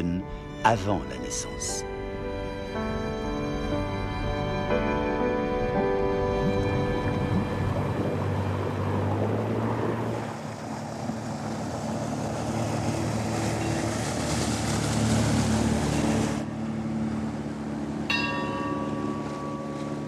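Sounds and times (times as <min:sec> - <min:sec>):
water rushing along hull: 0:00.0 - 0:20.0
motorboat engine running: 0:01.8 - 0:20.0
buoy bell ringing: 0:18.1 - 0:20.0.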